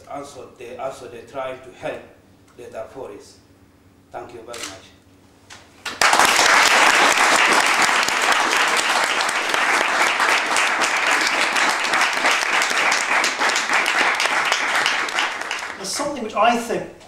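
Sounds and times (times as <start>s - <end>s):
audience applauding: 5.8s - 16.1s.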